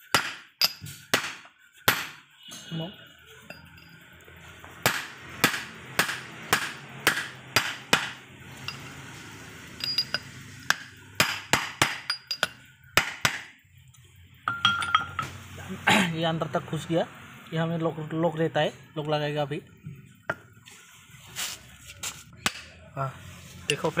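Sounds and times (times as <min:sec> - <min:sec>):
hammer on metal: 0:00.1 - 0:02.2, 0:04.8 - 0:08.9, 0:09.8 - 0:13.5
ringing metal clink: 0:00.6 - 0:00.9, 0:03.4 - 0:04.2, 0:08.6 - 0:09.0, 0:09.7 - 0:10.8, 0:12.0 - 0:12.9, 0:14.5 - 0:15.3.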